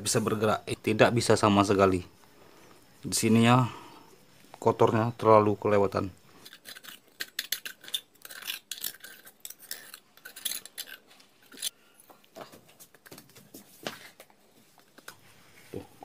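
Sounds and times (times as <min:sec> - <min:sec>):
metal tool scraping dirt: 0:06.4 - 0:11.8.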